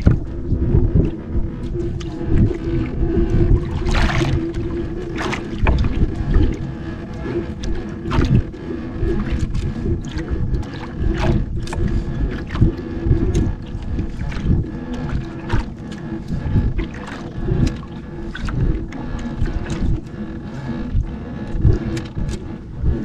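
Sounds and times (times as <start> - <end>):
faint steady hum: 0.0 - 23.0
water sloshing against boat hull: 0.0 - 23.0
wind on microphone: 0.0 - 23.0.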